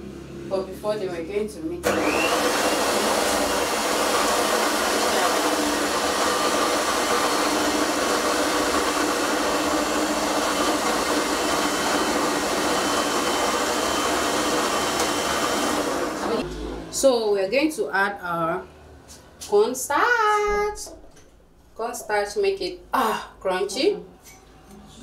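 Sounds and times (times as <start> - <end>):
electric stand mixer running: 1.8 - 16.8.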